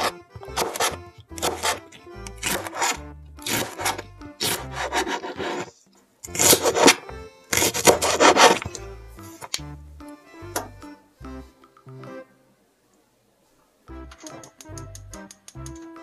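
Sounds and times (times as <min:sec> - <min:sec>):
knife cutting on plastic board: 0:00.0 - 0:08.8.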